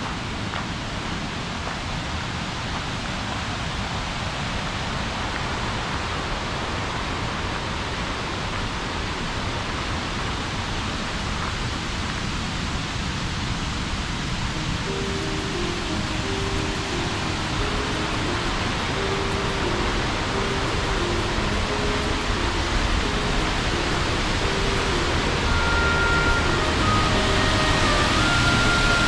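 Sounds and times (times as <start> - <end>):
river rushing through rapids: 0.0 - 29.0.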